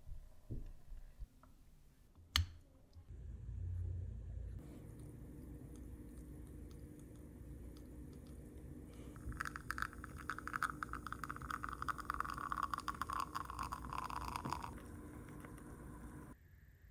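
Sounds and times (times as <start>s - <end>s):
espresso trickling into a cup: 4.9s - 16.4s.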